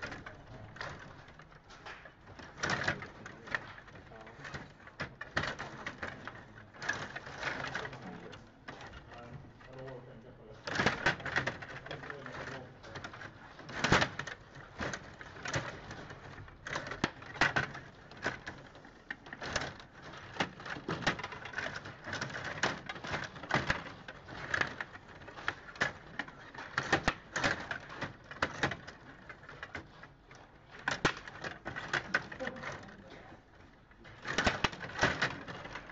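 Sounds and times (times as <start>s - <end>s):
table hockey plastic clicks: 12.9s - 32.7s.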